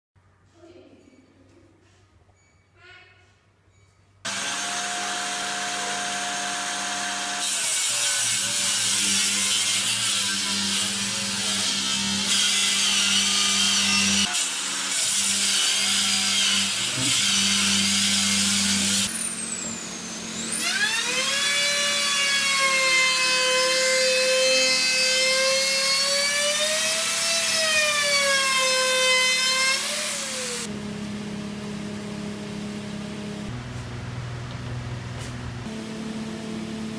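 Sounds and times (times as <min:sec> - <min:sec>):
power saw cutting board: 0:04.3 - 0:30.7.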